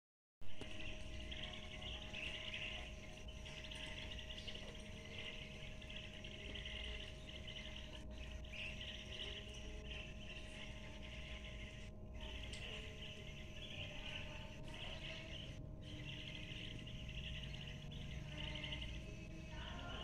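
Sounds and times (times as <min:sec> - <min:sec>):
steady low hum: 0:00.4 - 0:20.0
chorus of high chirping: 0:00.5 - 0:20.0.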